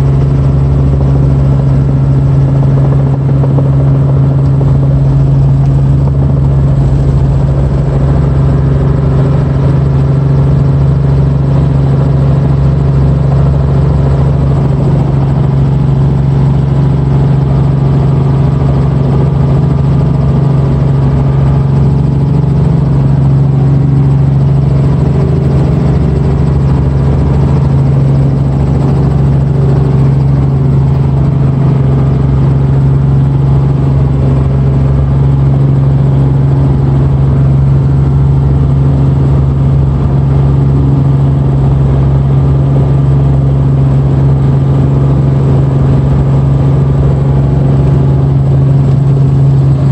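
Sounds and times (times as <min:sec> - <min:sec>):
helicopter engine and rotors droning: 0:00.0 - 0:49.9.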